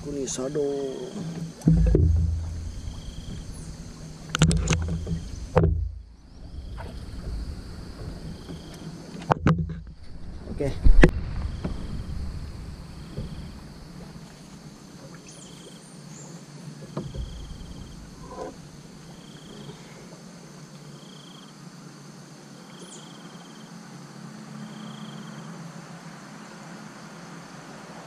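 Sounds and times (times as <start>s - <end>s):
steady low hum: 0.0s - 14.9s
insect chirping: 0.0s - 28.0s
soft knocks: 1.1s - 6.2s, 13.0s - 14.4s, 16.8s - 18.6s.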